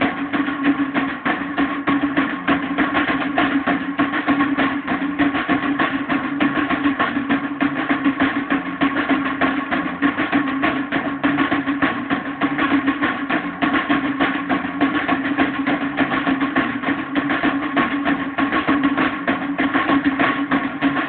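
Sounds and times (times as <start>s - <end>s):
drum kit fast beat: 0.0s - 21.0s.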